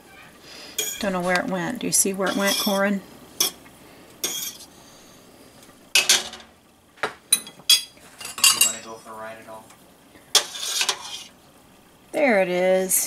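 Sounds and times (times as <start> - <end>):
fork clinking against metal pot: 0.8 - 1.1, 2.3 - 2.8.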